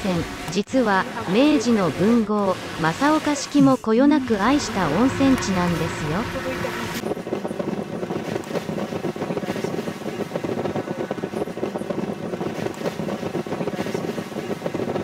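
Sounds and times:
road and wind noise: 4.2 - 15.0.

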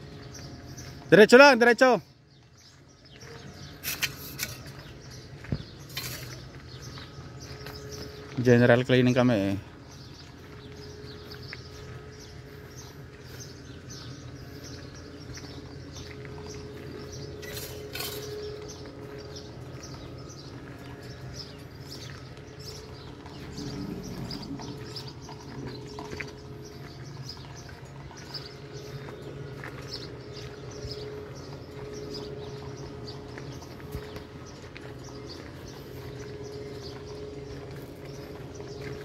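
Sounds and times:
truck engine humming: 0.0 - 3.8, 4.4 - 39.0
small birds chirping: 0.0 - 39.0.

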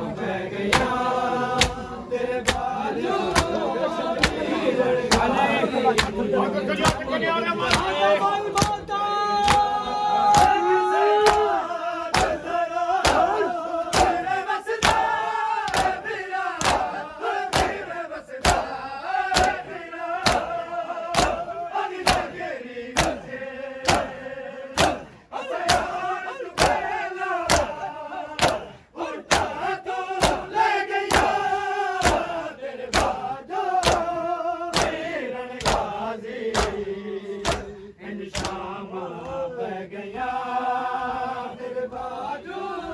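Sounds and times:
men chanting: 0.0 - 42.9
palms slapping chests: 0.7 - 4.5, 5.1 - 10.6, 11.2 - 16.0, 16.6 - 17.8, 18.4 - 20.5, 23.9 - 24.2, 24.8 - 26.0, 26.6 - 27.8, 28.4 - 28.7, 30.2 - 30.5, 34.7 - 35.9, 37.4 - 37.7.

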